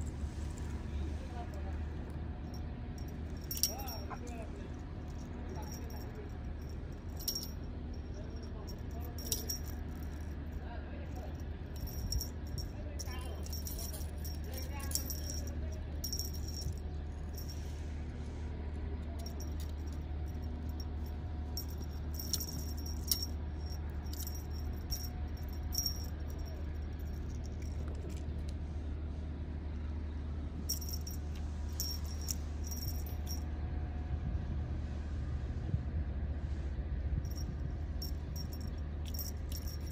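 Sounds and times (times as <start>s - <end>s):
steady low hum: 0.0s - 39.9s
small metal jingle: 2.4s - 17.7s, 19.2s - 28.2s, 30.7s - 33.5s, 37.2s - 39.9s.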